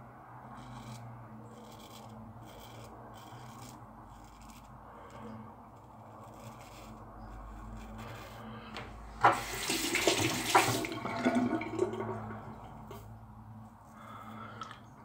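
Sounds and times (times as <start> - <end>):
razor scraping stubble: 0.5 - 8.7
sink tap running: 9.2 - 12.0.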